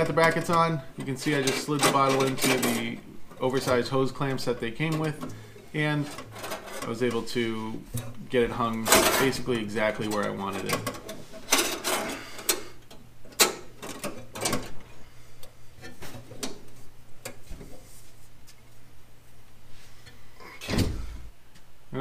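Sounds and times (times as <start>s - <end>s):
clicks and knocks on metal: 10.1s - 14.9s.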